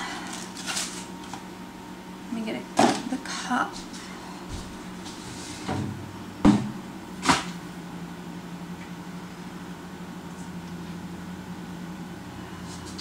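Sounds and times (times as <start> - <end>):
steady low hum: 0.0 - 13.0
cupboard knocks: 6.5 - 6.8.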